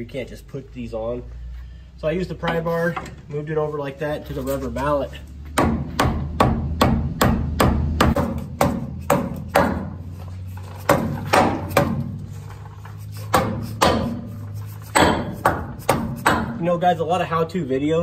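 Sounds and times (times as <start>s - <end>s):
rubber mallet striking metal: 5.6s - 10.0s, 10.9s - 12.2s, 13.3s - 14.3s, 14.9s - 16.6s.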